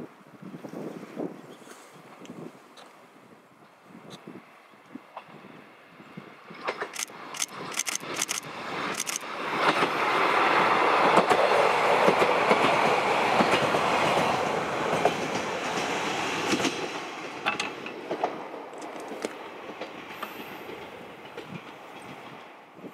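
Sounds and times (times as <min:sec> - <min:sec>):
diesel railcar passing: 0:03.0 - 0:22.9
wheel clicks: 0:07.0 - 0:08.4, 0:09.0 - 0:09.2.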